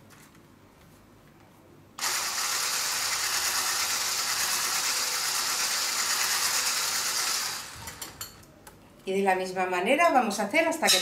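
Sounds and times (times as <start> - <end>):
electric mixer running: 2.0 - 8.2.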